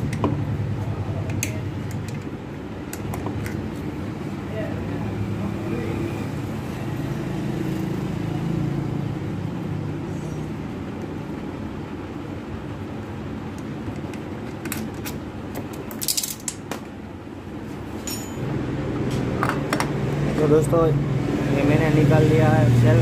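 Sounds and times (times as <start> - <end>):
metallic clicks and clinks of tools: 15.8 - 16.6, 18.0 - 18.5.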